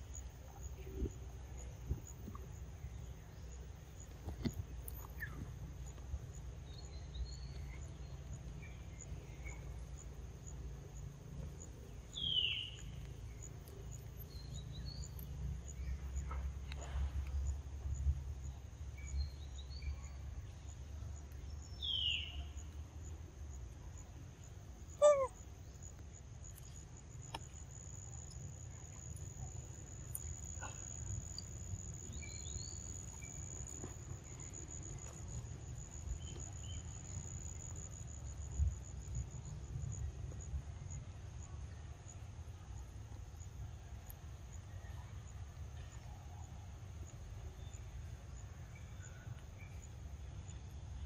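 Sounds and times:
insects droning: 0:00.0 - 0:51.0
bird chirps: 0:04.9 - 0:05.5, 0:11.9 - 0:16.4, 0:21.4 - 0:22.7.

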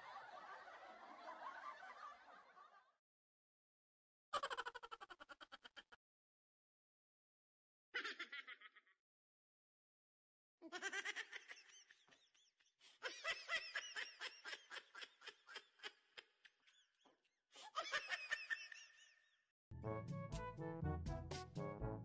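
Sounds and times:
person laughing: 0:04.4 - 0:06.0, 0:08.0 - 0:08.9.

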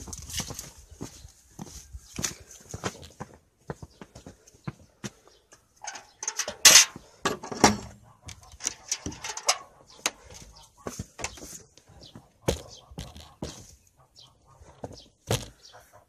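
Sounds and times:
irregular knocks and clatter: 0:05.1 - 0:10.3.

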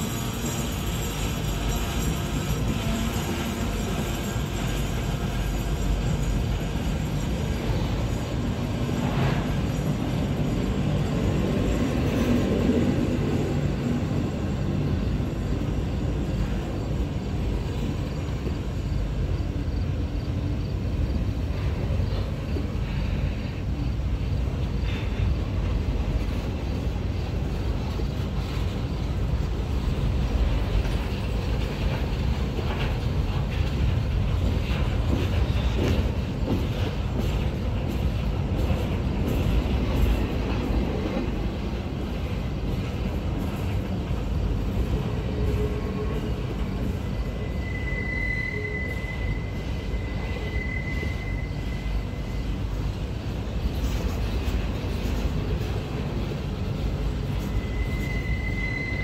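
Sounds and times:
train wheels rumbling on rail: 0:00.0 - 0:59.0
wheel squeal: 0:44.8 - 0:52.6, 0:57.1 - 0:59.0.

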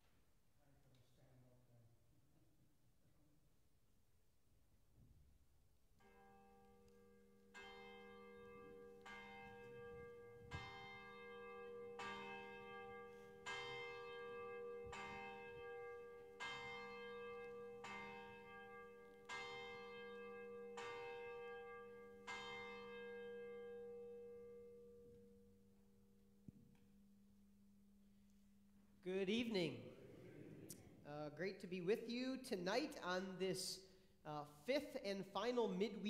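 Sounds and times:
church bell tolling: 0:06.0 - 0:26.2.

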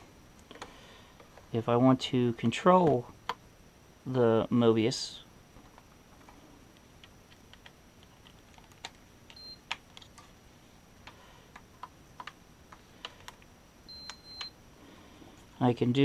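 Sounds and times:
short high-pitched beeps: 0:13.9 - 0:14.5.

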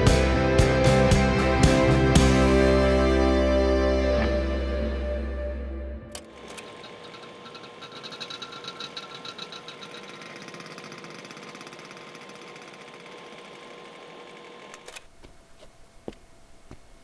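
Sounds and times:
film projector clatter: 0:06.2 - 0:15.1.

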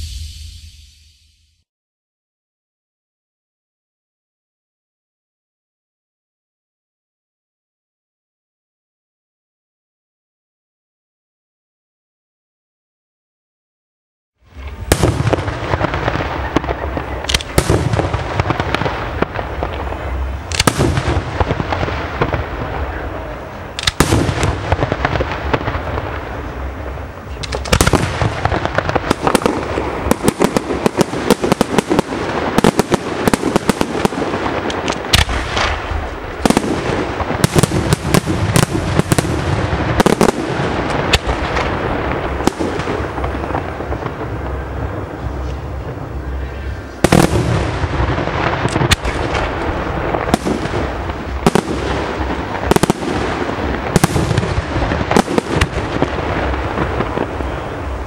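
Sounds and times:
fireworks bursting: 0:00.0 - 0:01.4, 0:14.5 - 0:58.0.

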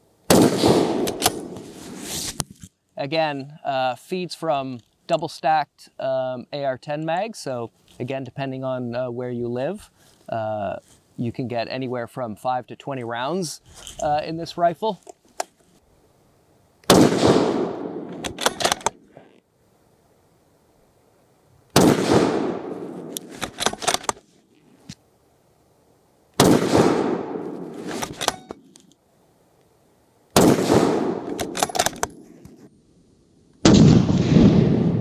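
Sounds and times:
rifle shots: 0:00.3 - 0:01.9, 0:16.9 - 0:19.0, 0:21.8 - 0:24.2, 0:26.4 - 0:28.7, 0:30.4 - 0:32.2, 0:33.6 - 0:35.0
rifle bolt clicking: 0:01.0 - 0:01.6, 0:18.1 - 0:19.0, 0:23.0 - 0:24.2, 0:27.8 - 0:28.9, 0:31.2 - 0:32.6.

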